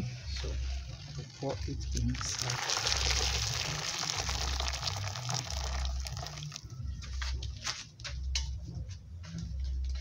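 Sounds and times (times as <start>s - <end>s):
water pouring into bowl: 2.0s - 6.6s.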